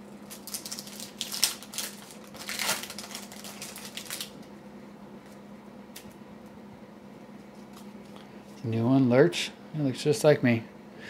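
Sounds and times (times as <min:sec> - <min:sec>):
plastic wrapper crinkling and tearing: 0:00.2 - 0:04.5.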